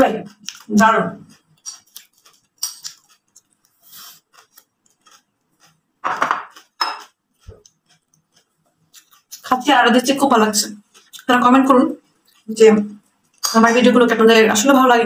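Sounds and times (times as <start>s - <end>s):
metal spoon scraping ceramic plate: 1.6s - 3.3s, 6.1s - 7.2s, 13.3s - 14.0s.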